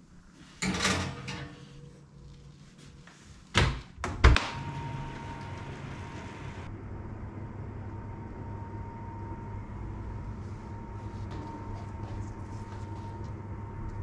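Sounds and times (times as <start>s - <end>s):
hum with high tone: 4.4s - 14.0s.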